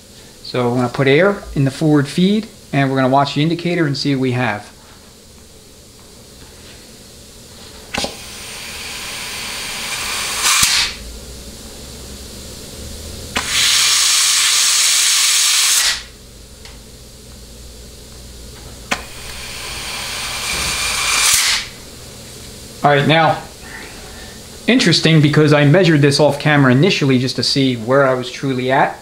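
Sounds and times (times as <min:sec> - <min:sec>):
compressed air blow gun hissing: 0:07.8 - 0:11.1, 0:13.3 - 0:16.2, 0:18.9 - 0:22.4.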